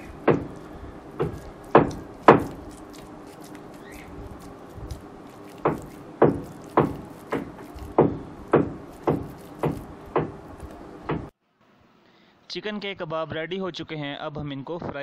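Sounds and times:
sharp thumps: 0:00.0 - 0:11.3.

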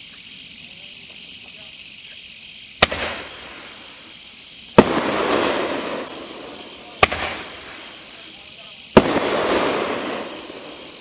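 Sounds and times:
firework crackling: 0:00.0 - 0:11.0
firework shell bursting bang: 0:02.8 - 0:03.7, 0:04.8 - 0:07.9
firework launching with a pop: 0:02.8 - 0:03.8, 0:04.7 - 0:08.0, 0:08.9 - 0:11.0.

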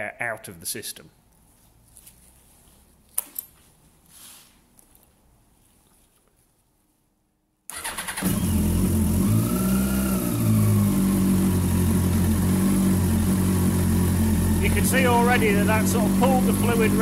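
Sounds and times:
electric starter cranking: 0:07.7 - 0:17.0
motorcycle engine idling and revving: 0:07.8 - 0:17.0.

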